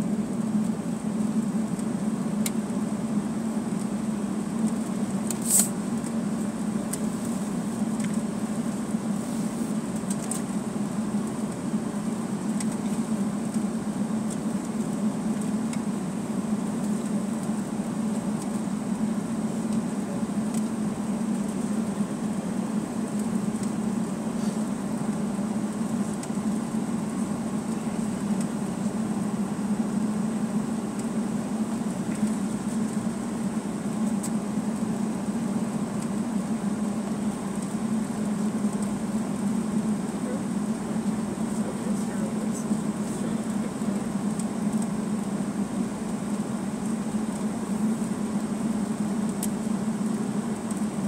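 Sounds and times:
low airliner cabin hum: 0:00.0 - 0:51.0.

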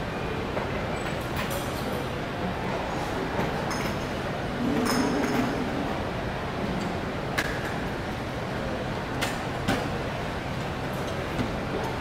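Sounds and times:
airport terminal background noise: 0:00.0 - 0:12.0.

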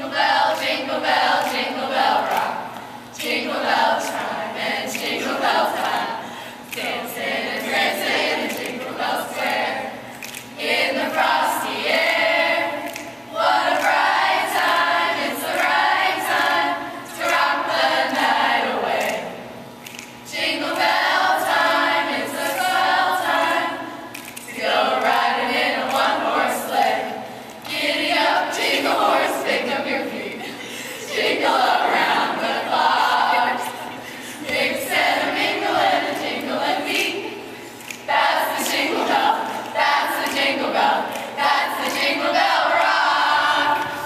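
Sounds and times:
women singing a carol: 0:00.0 - 0:19.5, 0:20.3 - 0:44.0.

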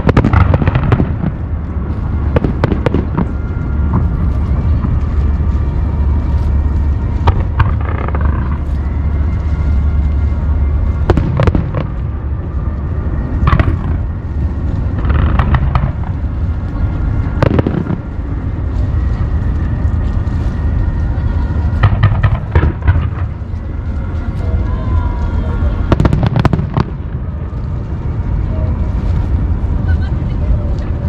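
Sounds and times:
firework booms: 0:00.0 - 0:05.0, 0:07.2 - 0:08.8, 0:10.9 - 0:12.2, 0:13.4 - 0:18.4, 0:21.7 - 0:23.6, 0:25.8 - 0:27.4
continuous low rumble: 0:00.0 - 0:31.0
firework crackling: 0:00.0 - 0:31.0.

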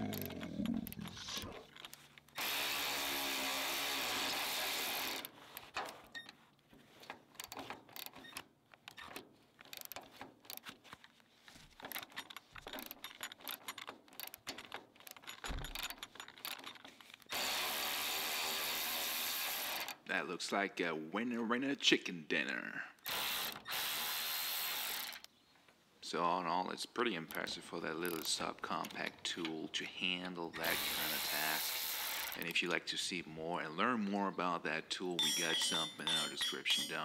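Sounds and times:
cordless ratchet motor running: 0:30.6 - 0:32.4
ratchet clicking and metallic knocks: 0:35.2 - 0:37.0.

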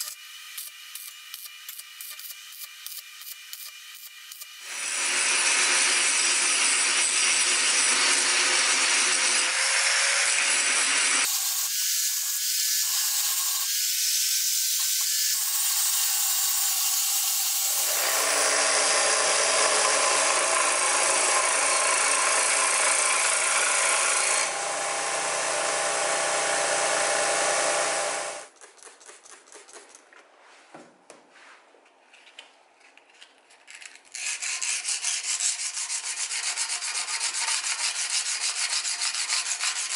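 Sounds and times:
angle grinder grinding metal: 0:00.0 - 0:28.5, 0:34.1 - 0:39.9
belt grinder rasping: 0:14.4 - 0:28.3, 0:33.7 - 0:39.9.

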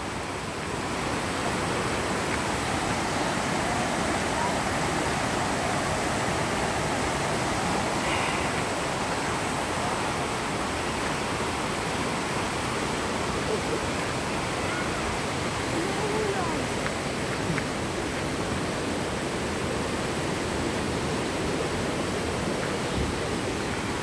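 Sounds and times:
creek rushing over boulders: 0:00.0 - 0:24.0.

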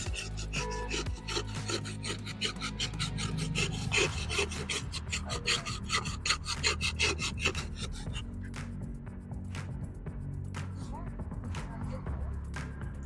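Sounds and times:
ice block rasping on blade: 0:00.0 - 0:08.2.

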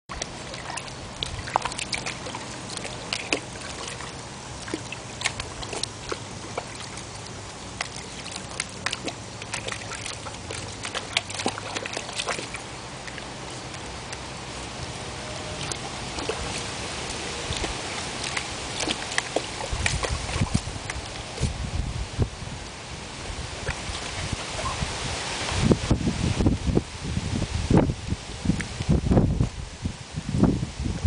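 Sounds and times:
puppy splashing in water: 0:00.1 - 0:22.2, 0:23.1 - 0:25.7.

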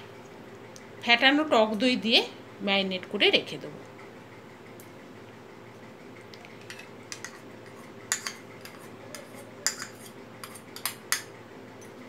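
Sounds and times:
spoon clinking against bowl: 0:08.1 - 0:11.3.

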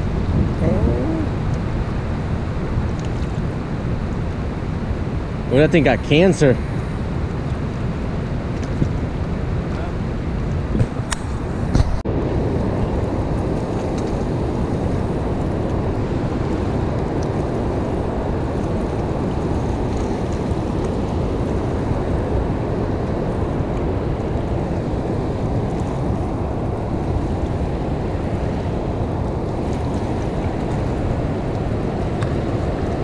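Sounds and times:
fast-flowing river water: 0:00.0 - 0:33.0
wind buffeting the microphone: 0:00.0 - 0:33.0.

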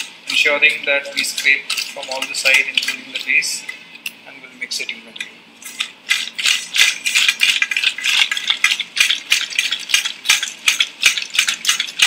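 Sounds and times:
spatula scraping metal bowl: 0:00.0 - 0:03.7.

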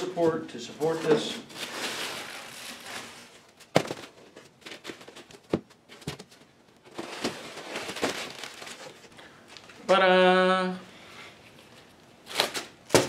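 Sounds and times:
cardboard and bubble-wrap rustling: 0:00.8 - 0:09.8.

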